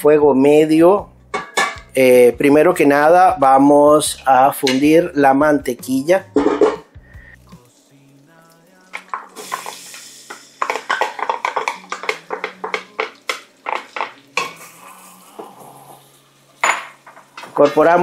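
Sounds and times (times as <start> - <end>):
light sizzle: 5.8 - 18.0.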